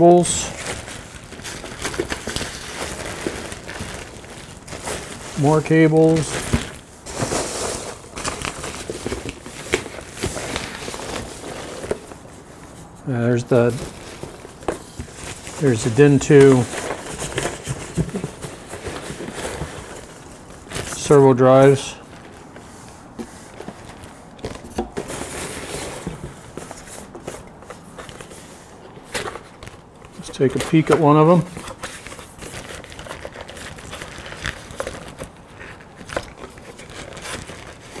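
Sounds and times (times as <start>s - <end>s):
plastic wrap and packing peanuts rustling: 0.0s - 38.0s
cardboard boxes knocking and sliding: 16.5s - 20.2s.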